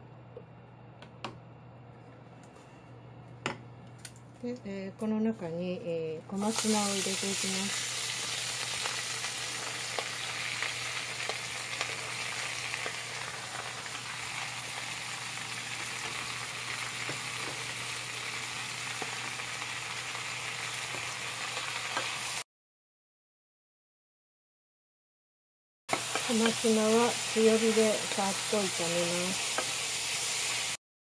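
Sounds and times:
greens sizzling in oil: 6.4s - 22.4s, 25.9s - 30.8s.

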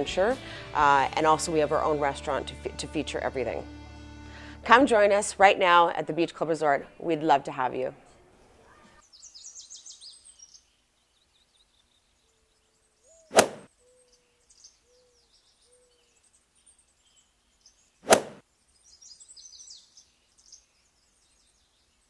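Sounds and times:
faint high bird chirps: 8.1s - 18.0s, 18.7s - 22.0s.

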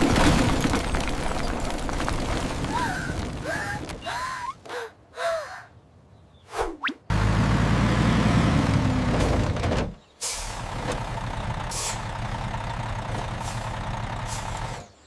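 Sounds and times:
truck diesel engine rumbling: 7.1s - 15.0s.

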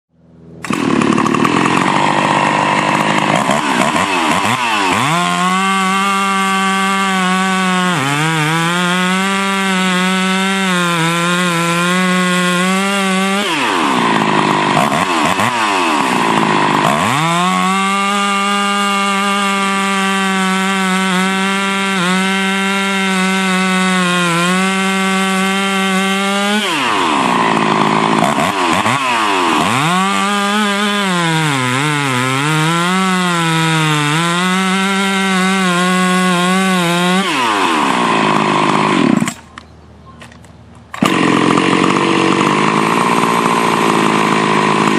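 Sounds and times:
chainsaw cutting log: 0.6s - 39.6s, 40.8s - 44.9s.

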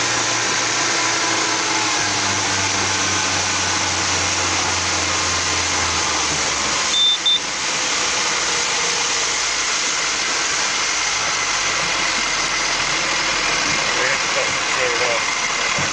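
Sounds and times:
outboard motor running: 0.0s - 15.9s
short high beeps: 6.9s - 7.5s.

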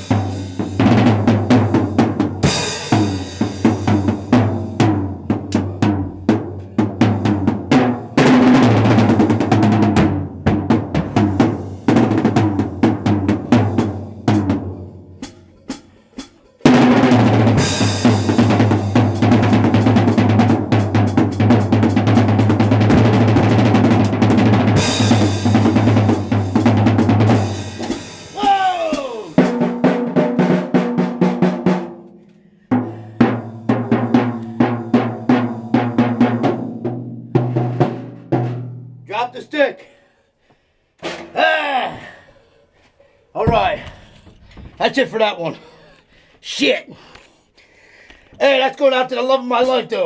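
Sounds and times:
drum kit solo: 0.0s - 32.1s, 32.7s - 39.6s, 43.4s - 44.1s.

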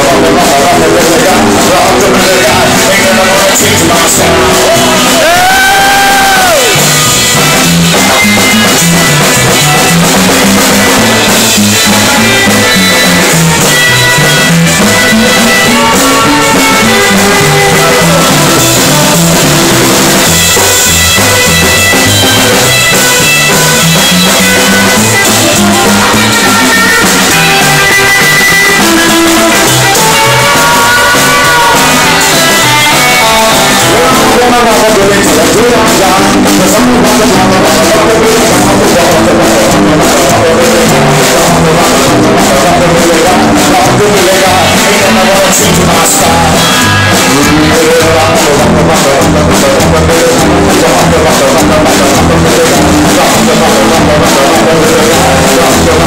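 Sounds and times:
electric guitar: 0.0s - 56.0s
live band playing: 0.0s - 56.0s
upright bass plucking: 0.0s - 56.0s
bending high guitar note: 3.6s - 37.4s.

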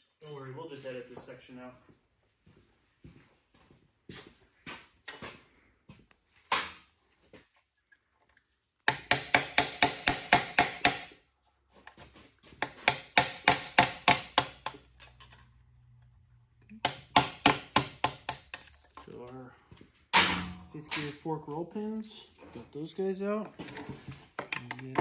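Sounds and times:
hammer striking metal punch: 8.9s - 11.1s, 16.8s - 18.8s, 20.2s - 21.2s.

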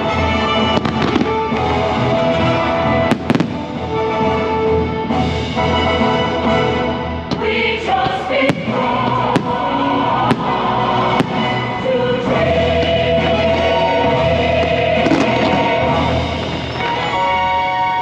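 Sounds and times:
music with voices singing: 0.0s - 18.0s
firework bangs: 0.7s - 1.8s, 3.0s - 3.8s, 7.3s - 17.4s.

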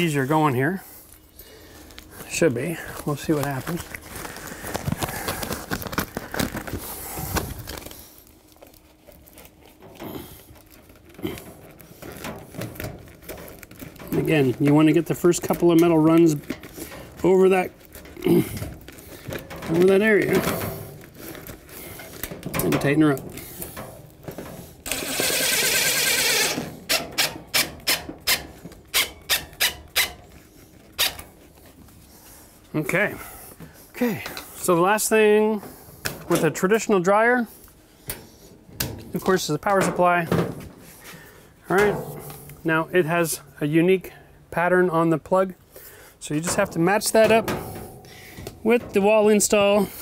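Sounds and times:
foil duct crinkling: 0.1s - 50.0s
cordless drill driver running: 24.9s - 27.3s
drill driver short sharp bursts: 24.9s - 28.4s.

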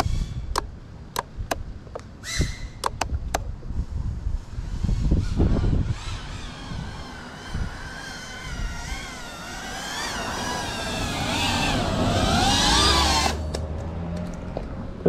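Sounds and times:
drone motors whining: 4.6s - 14.7s.

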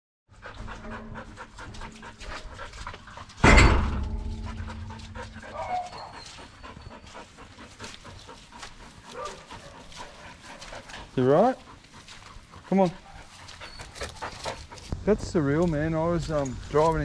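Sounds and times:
dog panting: 0.3s - 17.0s
loud thump: 3.4s - 5.4s.

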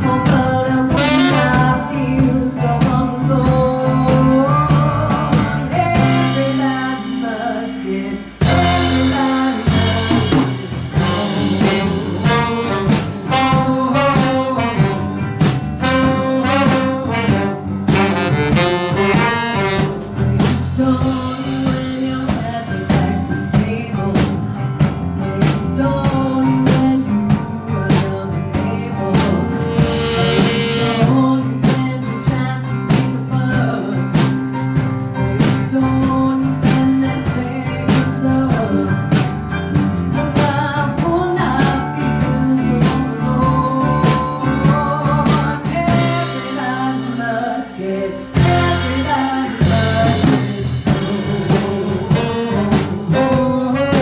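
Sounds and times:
saxophone: 0.0s - 3.0s, 7.9s - 21.2s, 29.0s - 32.5s, 47.8s - 54.0s
woman singing lead vocal: 0.0s - 34.6s, 35.2s - 54.0s
live band playing blues rock: 0.0s - 54.0s
drum beat: 9.7s - 21.8s, 29.1s - 31.9s, 48.4s - 54.0s.

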